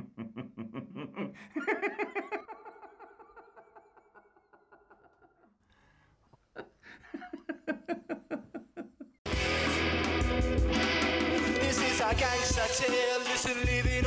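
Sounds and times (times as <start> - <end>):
old man chuckling: 0.0 - 5.6, 6.4 - 9.2.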